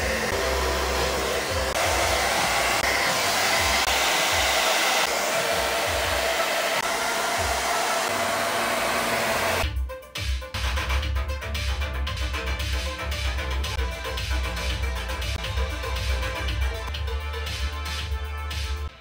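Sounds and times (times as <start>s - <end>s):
hair dryer running: 0.0s - 9.6s.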